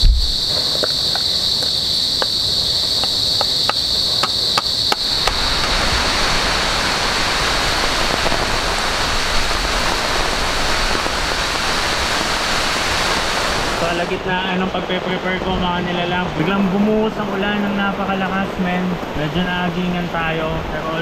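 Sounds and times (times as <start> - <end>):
high insect drone: 0.0 - 14.9
heavy rain pouring: 0.0 - 21.0.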